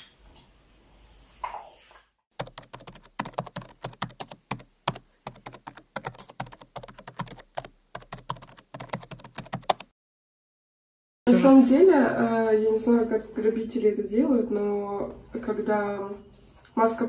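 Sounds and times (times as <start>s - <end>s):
keyboard keystroke clicks: 2.4s - 9.9s.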